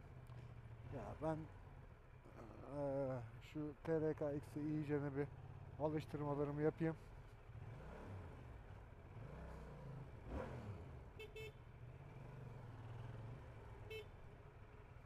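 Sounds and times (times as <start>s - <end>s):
motorcycle engine running: 4.5s - 6.3s
motorcycle horn toots: 11.2s - 11.6s, 13.8s - 14.2s.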